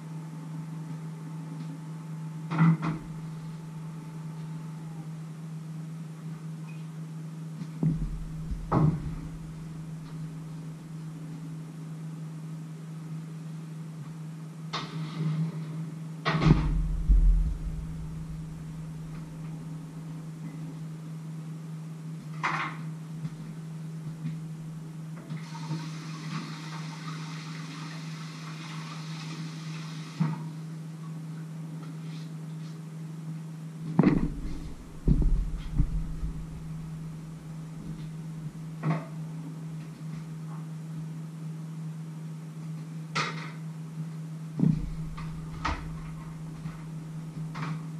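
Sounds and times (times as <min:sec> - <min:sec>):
low hum: 0:00.0 - 0:06.6, 0:07.3 - 0:11.3, 0:16.4 - 0:20.6, 0:34.0 - 0:38.6, 0:44.6 - 0:47.4
hiss: 0:25.4 - 0:30.5.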